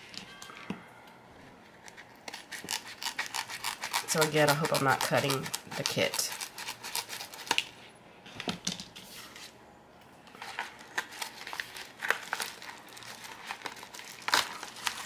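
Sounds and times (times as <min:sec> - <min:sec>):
scissors snipping plastic: 0:02.3 - 0:07.7
plastic mailer crinkling: 0:10.3 - 0:15.0.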